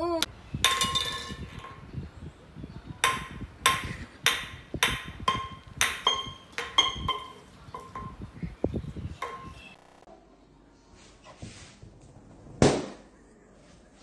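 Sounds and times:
metal can clanking on concrete: 0.7 - 1.8.

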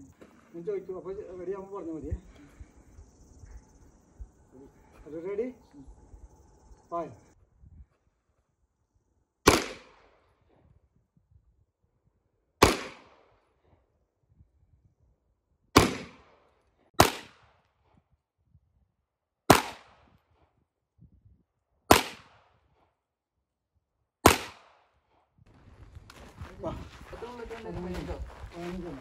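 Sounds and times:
pistol shots with echo: 9.4 - 10.2, 12.6 - 13.3, 15.8 - 16.4, 17.0 - 17.5, 19.5 - 20.1, 21.9 - 22.5, 24.2 - 24.8.

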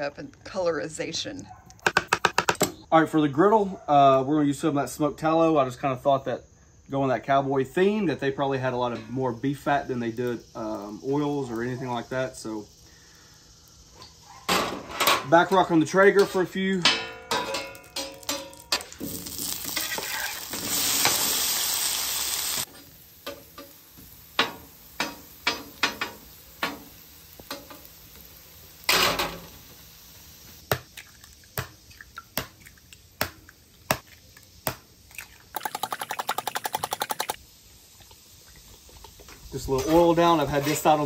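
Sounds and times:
fat sizzling on a griddle: 7.5 - 35.1, 35.7 - 41.0
metal spatula tapping griddle: 16.2 - 18.9, 24.4 - 26.9.

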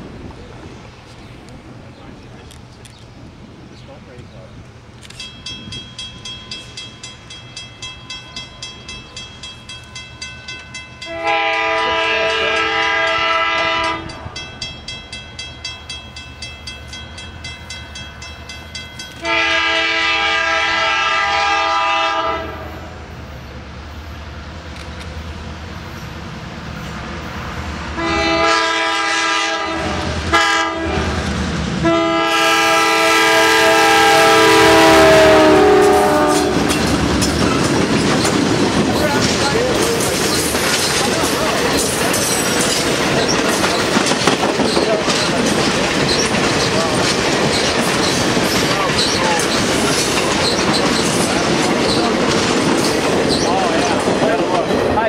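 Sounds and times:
rumble of approaching locomotive: 0.0 - 55.0
crossing bell ringing: 5.0 - 20.6, 33.2 - 55.0
locomotive air horn blasts: 11.1 - 14.4, 19.2 - 22.9, 28.0 - 31.2, 31.8 - 36.8.

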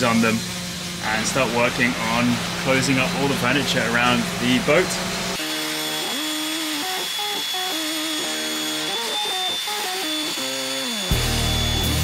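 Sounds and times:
table saw cutting wood: 0.0 - 12.0
music with held notes: 11.1 - 12.0.

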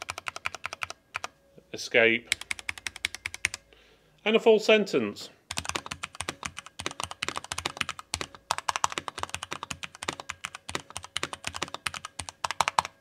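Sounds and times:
fast typing on mechanical keyboard: 0.0 - 1.3, 2.3 - 3.6, 5.5 - 13.0.

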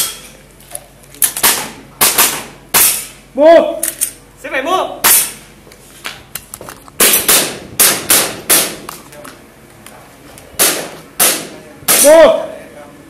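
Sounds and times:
airsoft gun shots: 1.4 - 3.2, 5.0 - 5.4, 7.0 - 8.9, 10.6 - 12.2.

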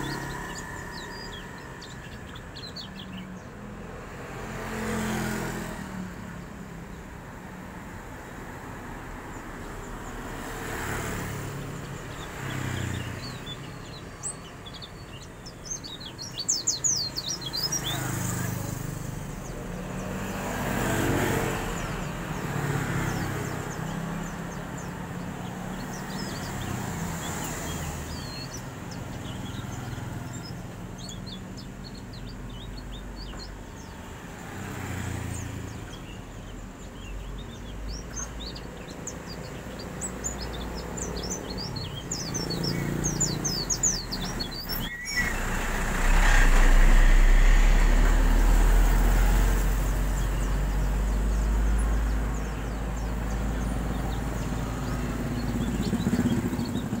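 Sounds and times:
passing vehicles rumbling: 0.0 - 57.0
small bird twittering: 37.0 - 47.6.

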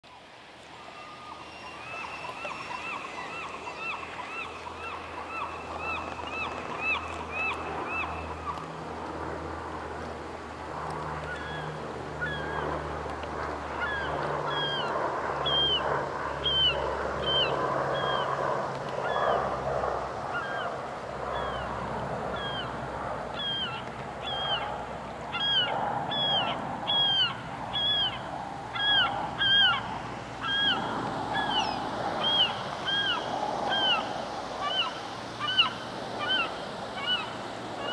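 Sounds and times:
steady rushing wash: 0.0 - 37.9
birds calling: 0.7 - 8.7, 13.7 - 18.4, 22.3 - 24.7, 25.3 - 37.9.

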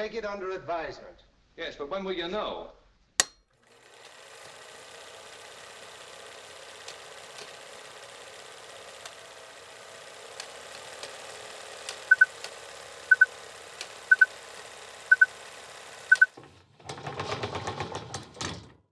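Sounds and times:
mechanical whir: 3.6 - 17.2
loud rattling clatter: 3.6 - 18.8.

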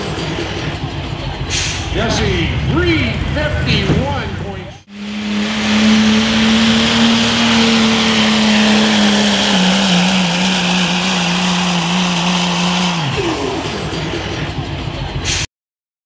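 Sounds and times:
diesel truck engine at full throttle: 0.0 - 15.4
turbo and exhaust hiss: 4.9 - 14.0.

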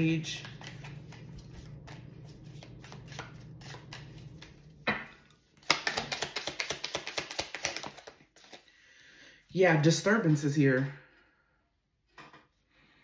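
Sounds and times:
cards flicking while shuffled: 0.4 - 4.8, 5.6 - 8.6
card snap: 5.6 - 8.1.

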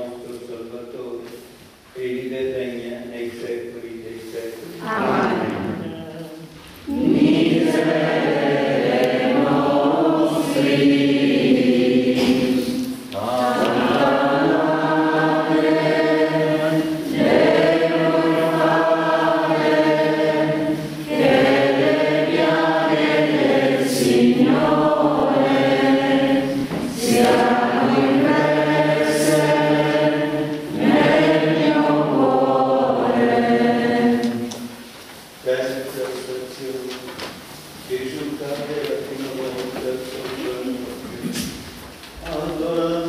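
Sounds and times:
congregation singing a hymn: 1.9 - 43.0.

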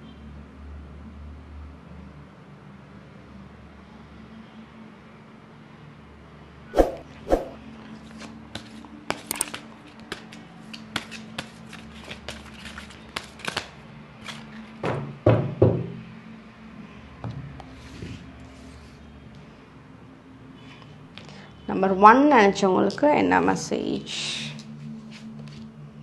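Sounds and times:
cards being shuffled: 6.8 - 14.8
cards thumping on table: 10.9 - 13.7.

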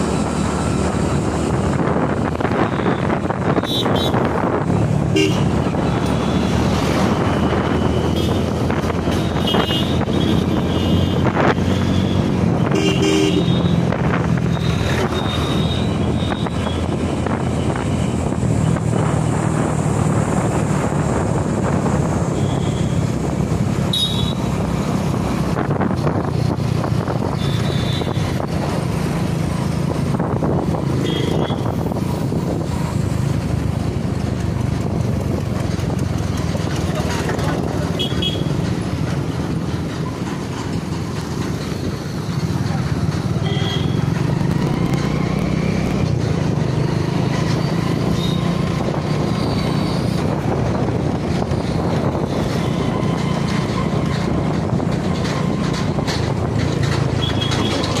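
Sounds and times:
road and wind noise: 0.0 - 58.0
motorcycle engine running: 25.3 - 58.0.

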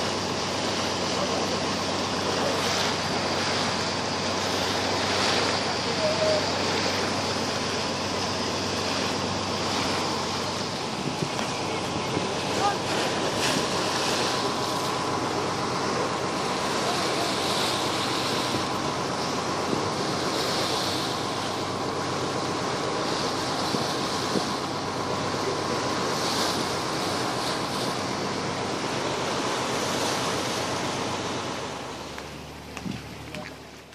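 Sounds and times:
boat engine humming: 0.0 - 33.9
water rushing along a hull: 0.0 - 33.9
wind on the microphone: 10.6 - 13.7, 23.5 - 24.6.

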